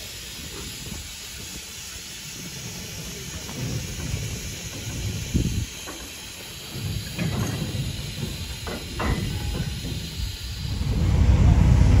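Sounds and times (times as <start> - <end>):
steam hissing: 0.0 - 12.0
steam locomotive exhaust beats: 0.0 - 12.0
low rumble: 10.6 - 12.0.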